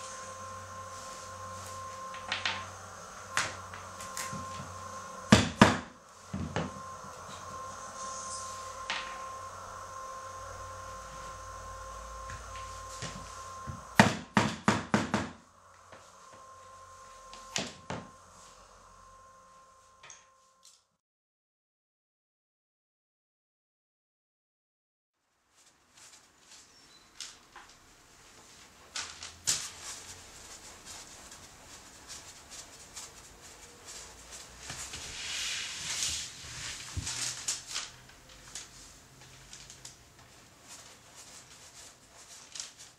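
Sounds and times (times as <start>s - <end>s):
paintbrush swishing on canvas: 29.6s - 37.2s.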